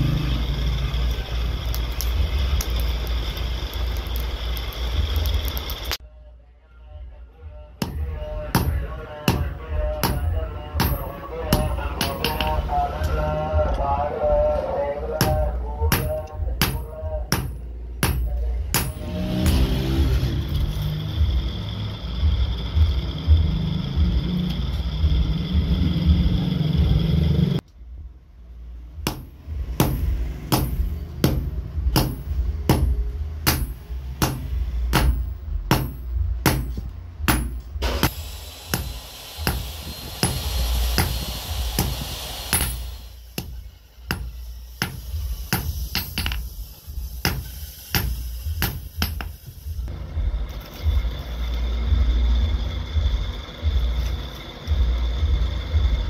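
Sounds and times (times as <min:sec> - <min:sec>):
low rumble with high whine: 0:00.0 - 0:56.0
hammer blows on hot metal: 0:29.0 - 0:49.9.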